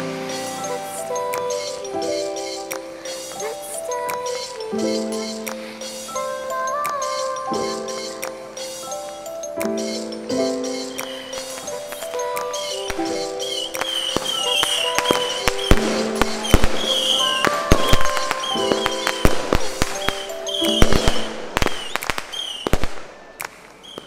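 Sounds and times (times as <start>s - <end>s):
background music: 0.0s - 23.5s
fireworks bangs and crackles: 12.9s - 24.0s.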